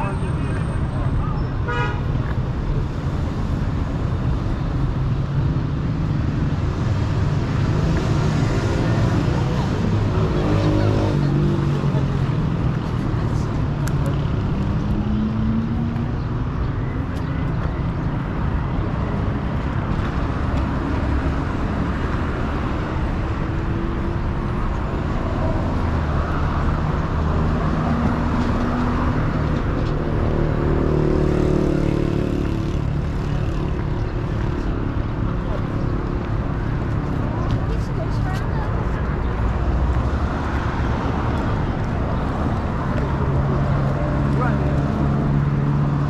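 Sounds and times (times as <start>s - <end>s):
people talking: 0.0s - 1.5s, 37.5s - 39.4s
road traffic: 0.0s - 46.0s.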